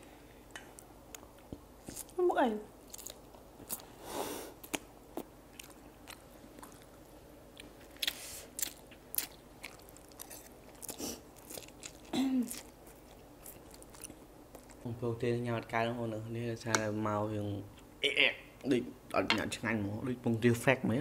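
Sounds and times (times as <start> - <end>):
chewing with wet mouth clicks: 2.8 - 3.9, 4.6 - 14.9.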